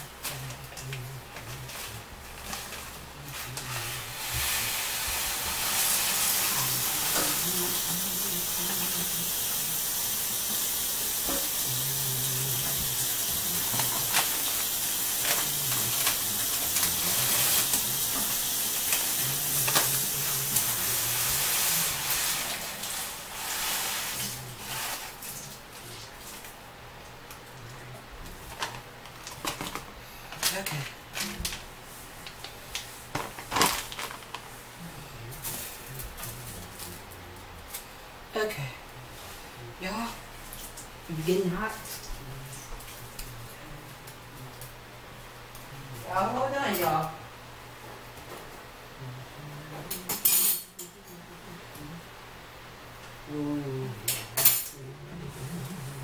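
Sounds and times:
hot pot sizzling: 1.7 - 25.7.

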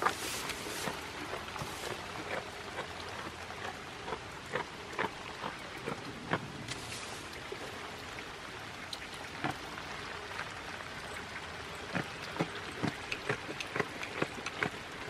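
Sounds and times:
rain hissing: 0.0 - 2.0, 6.4 - 8.0.

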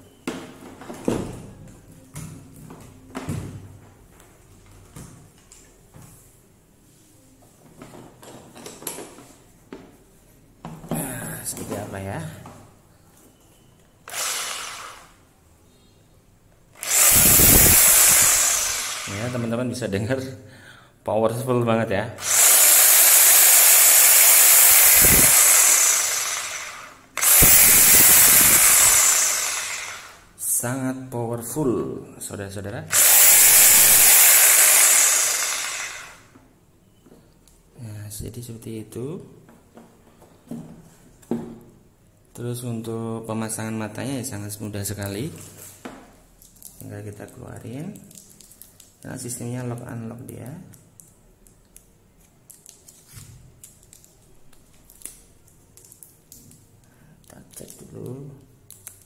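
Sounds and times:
reciprocating saw running: 14.1 - 15.1, 16.8 - 19.5, 22.2 - 30.2, 32.9 - 36.2.

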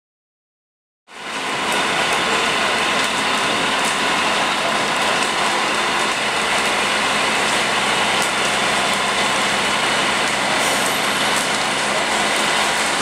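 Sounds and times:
fire crackling: 1.1 - 13.0
fire engine humming: 1.1 - 13.0
rushing hiss: 10.4 - 13.0.

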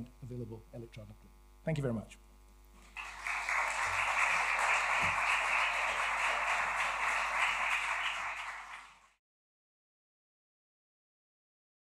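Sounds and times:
audience applauding: 2.8 - 9.2.

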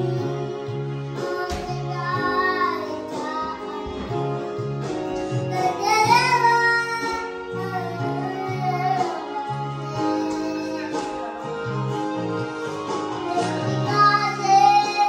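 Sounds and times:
child singing into microphone: 0.0 - 4.2, 5.5 - 11.5, 13.2 - 15.0
backing track with guitar and bass: 0.0 - 15.0.

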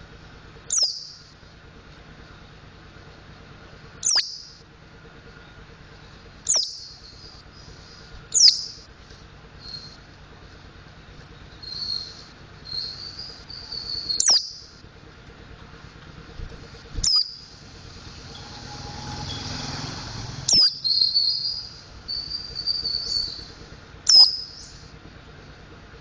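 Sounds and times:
bird twittering: 0.7 - 1.3, 4.0 - 4.6, 6.4 - 8.9, 9.6 - 10.0, 11.3 - 14.8, 17.0 - 18.6, 20.4 - 24.9.

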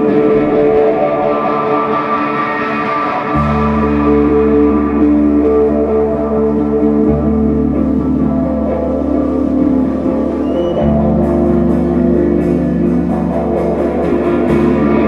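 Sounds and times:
electric bass: 0.0 - 15.0
electric guitar sustained notes: 0.0 - 15.0.

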